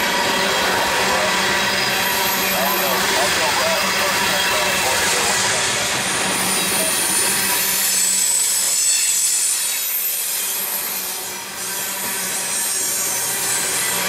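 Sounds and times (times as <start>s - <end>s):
train wheels grinding on rails: 0.0s - 14.0s.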